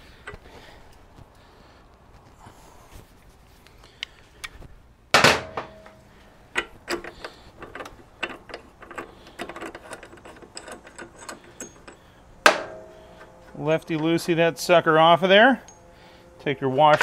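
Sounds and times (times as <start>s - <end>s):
ringing metal clank: 11.5s - 14.2s, 15.5s - 16.0s.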